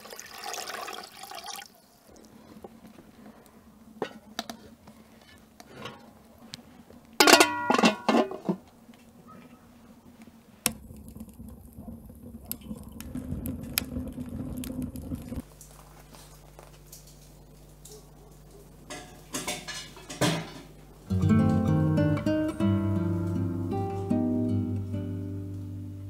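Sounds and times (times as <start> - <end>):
faint steady hum: 0.0 - 26.0
metal lid clanking: 7.2 - 8.6, 18.9 - 20.7
wood fire rushing and crackling: 9.7 - 17.8.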